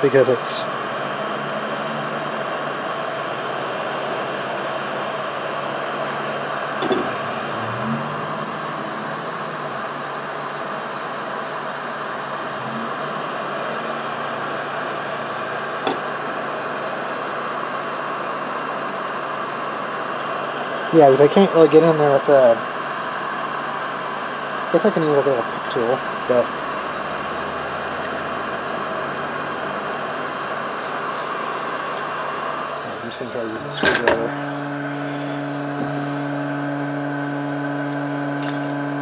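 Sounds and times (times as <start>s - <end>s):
heat gun blowing: 21.6s - 33.5s, 34.2s - 37.1s.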